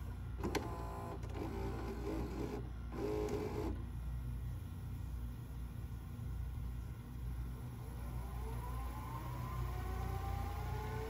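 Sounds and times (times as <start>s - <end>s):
tape deck mechanical hum: 0.0s - 5.9s
rising whine of spinning reels: 7.8s - 11.0s.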